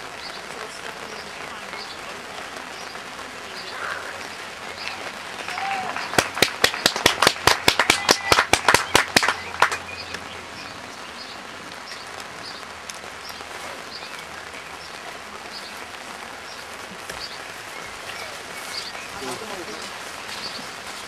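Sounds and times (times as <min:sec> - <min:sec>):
people clapping: 0:00.0 - 0:10.9
steady outdoor hiss: 0:00.0 - 0:21.0.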